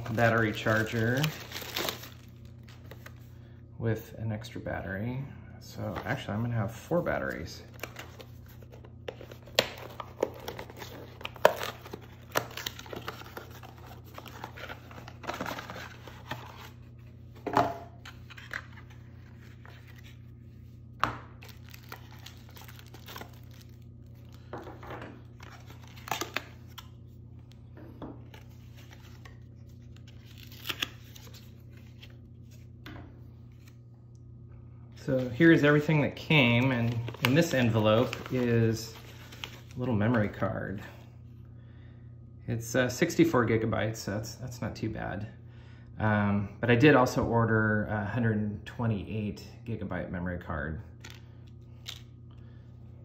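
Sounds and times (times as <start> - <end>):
paper and cardboard rustling: 36.5 - 39.8.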